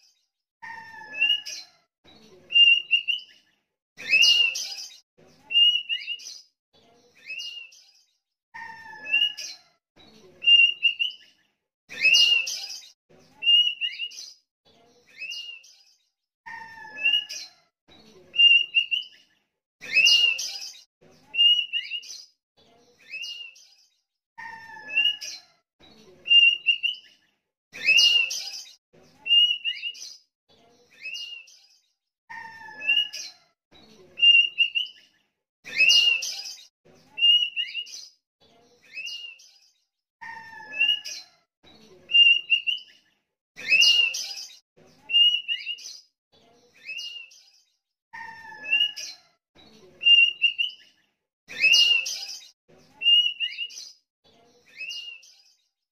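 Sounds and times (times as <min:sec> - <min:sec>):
bird singing whistled notes: 0:02.6 - 0:03.3, 0:05.5 - 0:06.4, 0:10.4 - 0:11.2, 0:26.3 - 0:27.0, 0:34.2 - 0:35.0, 0:42.2 - 0:42.9, 0:50.1 - 0:50.8, 0:53.1 - 0:53.7.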